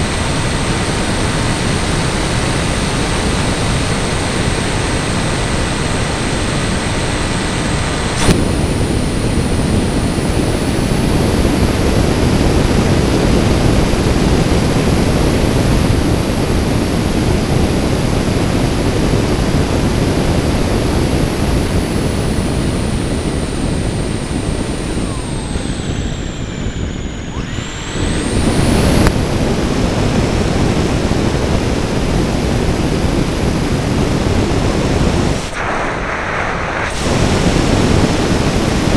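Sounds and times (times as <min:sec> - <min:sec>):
high thin motor whine: 0:00.0 - 0:38.9
wind rushing over camera: 0:00.0 - 0:38.9.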